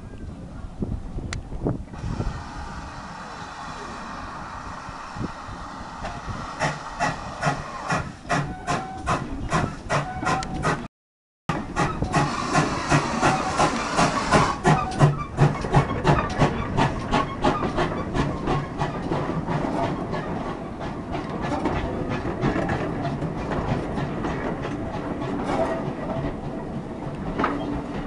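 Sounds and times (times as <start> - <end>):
steam hissing: 1.9 - 10.8, 11.8 - 15.5
train wheels clicking over rail joints: 1.9 - 10.9, 11.5 - 28.0.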